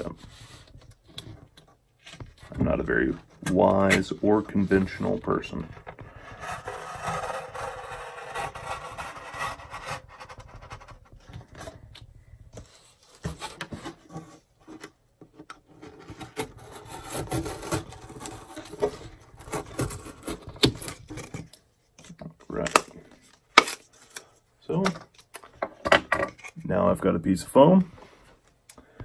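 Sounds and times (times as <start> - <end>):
blade scraping through foam board: 6.1 - 10.9, 16.0 - 21.0.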